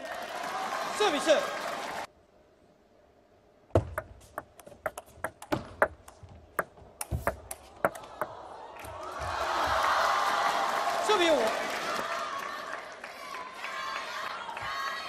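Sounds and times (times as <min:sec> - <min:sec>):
table tennis ball clicks: 0:03.8 - 0:08.3
crowd noise: 0:07.1 - 0:15.0.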